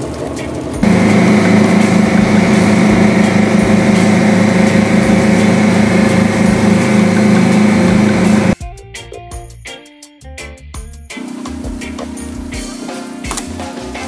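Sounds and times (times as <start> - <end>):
boat engine droning: 0.0 - 8.6
music: 0.0 - 14.0.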